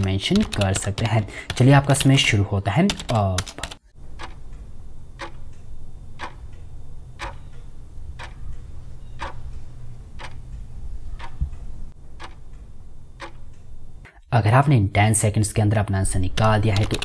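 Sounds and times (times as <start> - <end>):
clock ticking: 2.9 - 14.0
low steady hum: 4.0 - 15.4.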